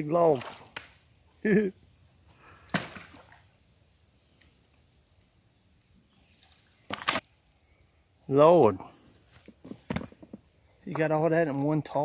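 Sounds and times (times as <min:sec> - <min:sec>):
branch splashing out of water: 0:00.3 - 0:01.0, 0:02.7 - 0:03.5, 0:06.4 - 0:07.5.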